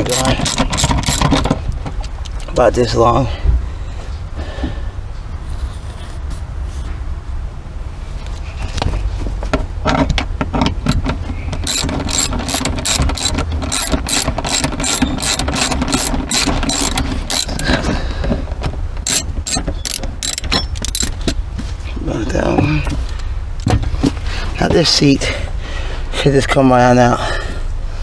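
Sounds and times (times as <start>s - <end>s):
ratchet wrench clicking: 0.0s - 1.4s, 11.6s - 17.7s, 19.0s - 21.2s.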